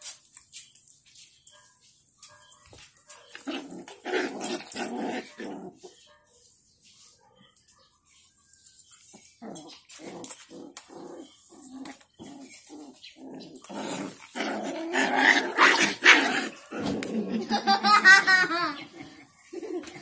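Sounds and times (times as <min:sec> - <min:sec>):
puppies growling and yipping: 0:03.3 - 0:05.9, 0:09.1 - 0:20.0.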